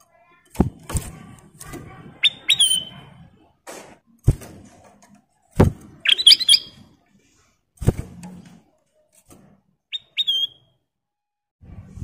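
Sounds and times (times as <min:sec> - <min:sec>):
bird whistled chirps: 0:02.2 - 0:03.0, 0:06.0 - 0:06.8, 0:09.9 - 0:10.7.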